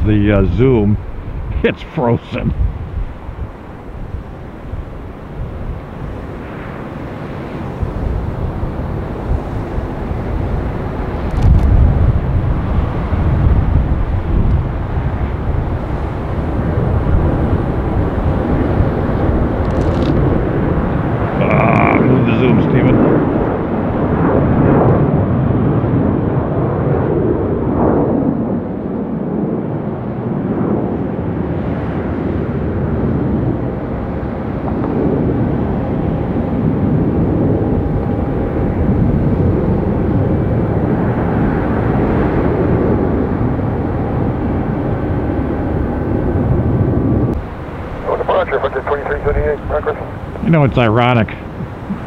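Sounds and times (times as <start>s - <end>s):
jet engines roaring at takeoff: 0.0s - 52.0s
faint engine whine: 42.4s - 52.0s.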